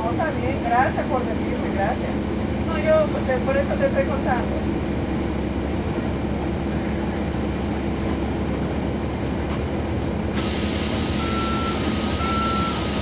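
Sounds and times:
bus diesel engine droning: 0:00.0 - 0:13.0
loud air hiss: 0:10.4 - 0:13.0
two-tone beeping: 0:11.2 - 0:12.8.

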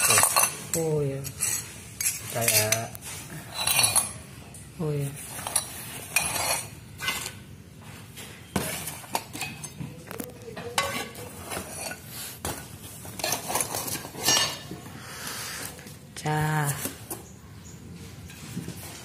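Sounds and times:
glass pieces clinking and scraping: 0:00.0 - 0:04.2, 0:05.2 - 0:07.4, 0:08.6 - 0:12.1, 0:12.9 - 0:14.8
cardboard and plastic rustling: 0:07.8 - 0:14.9.

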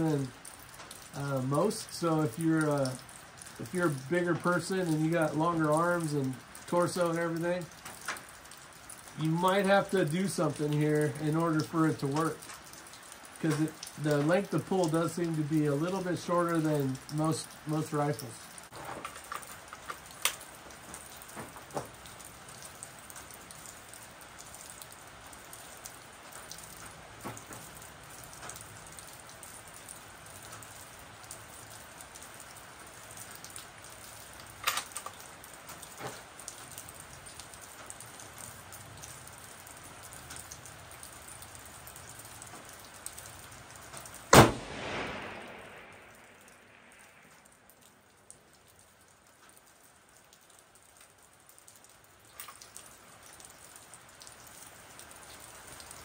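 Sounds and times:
steady hiss: 0:00.0 - 0:24.2, 0:32.6 - 0:48.7
rifle shot with echo: 0:44.3 - 0:47.3.

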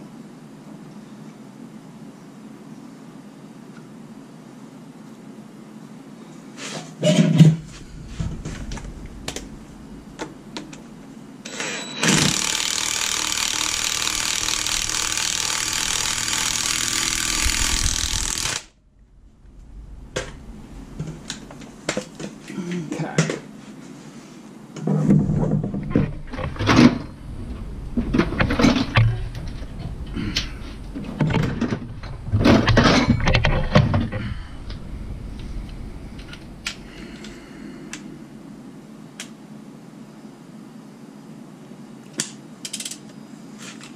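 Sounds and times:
impact wrench running: 0:11.5 - 0:18.8.

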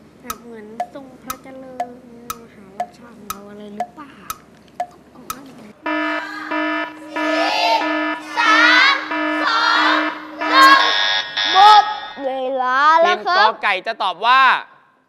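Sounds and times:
countdown timer ticking: 0:00.2 - 0:12.3
pulsing electronic buzzer: 0:05.8 - 0:12.2
children calling out: 0:06.0 - 0:12.3.

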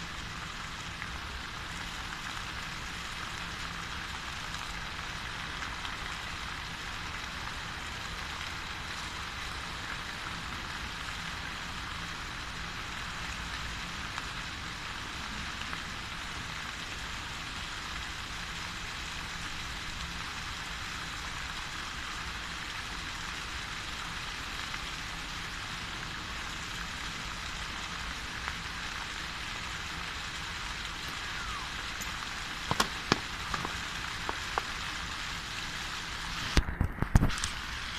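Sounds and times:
fountain water splashing: 0:00.0 - 0:37.9
sharp knocks: 0:32.7 - 0:33.8.

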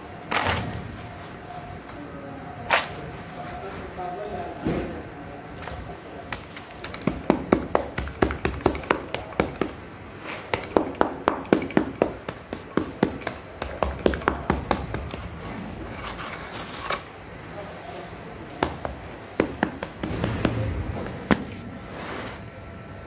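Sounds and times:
trowel tapping damp sand: 0:06.4 - 0:15.2.

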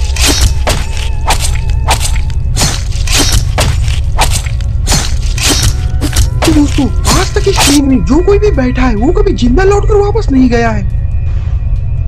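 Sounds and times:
sharp hits and swishes: 0:00.0 - 0:07.8
low rumble: 0:00.0 - 0:12.0
music: 0:00.0 - 0:12.0.

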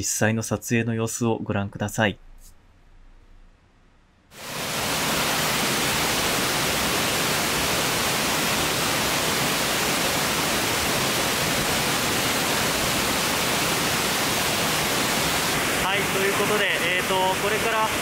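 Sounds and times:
waterfall rushing: 0:04.4 - 0:18.0.

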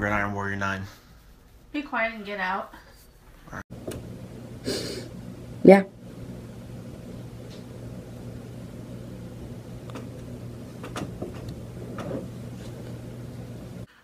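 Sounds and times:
low room hum: 0:02.2 - 0:14.0.

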